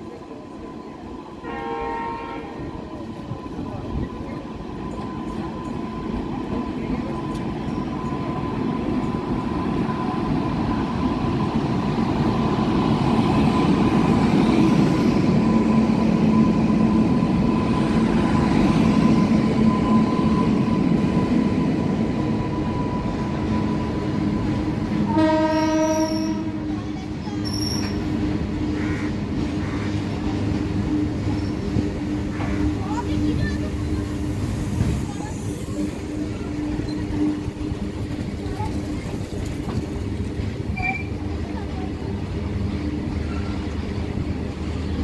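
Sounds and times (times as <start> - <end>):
electric locomotive whine: 0.0 - 45.0
train wagons rumbling: 0.0 - 45.0
train horn blast: 1.4 - 2.8, 25.0 - 26.8
brief high squeal: 40.7 - 41.2.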